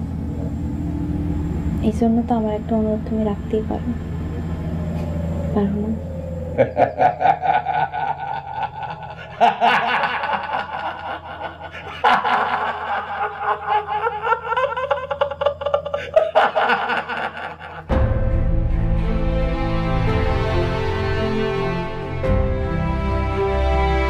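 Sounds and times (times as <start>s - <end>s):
man laughing: 6.6s - 17.9s
music: 17.8s - 24.0s.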